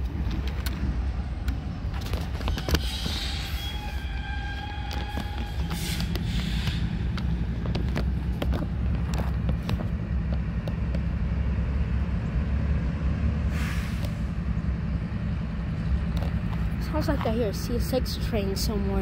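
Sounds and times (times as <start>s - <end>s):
diesel locomotives rumbling: 0.0s - 19.0s
brief hiss: 13.5s - 14.3s.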